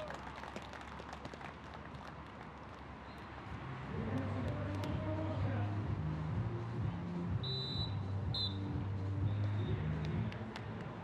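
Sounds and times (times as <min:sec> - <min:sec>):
background music over speakers: 0:03.7 - 0:11.0
referee's whistle blasts: 0:07.4 - 0:08.6.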